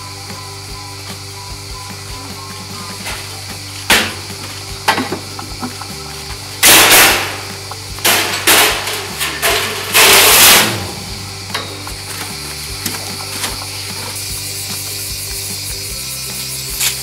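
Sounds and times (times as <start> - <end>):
background music: 0.0 - 17.0
metal door scraping open: 6.6 - 14.2.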